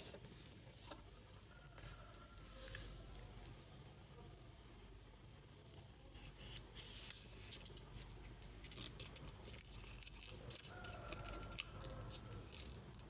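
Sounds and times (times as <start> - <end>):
paper crinkling: 6.4 - 13.0.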